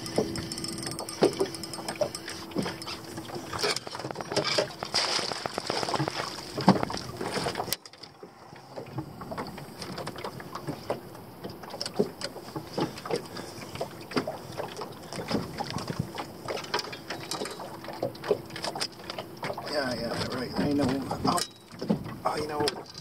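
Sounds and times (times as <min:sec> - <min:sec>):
water lapping against boat hull: 0:00.0 - 0:23.0
rustling: 0:02.9 - 0:07.6.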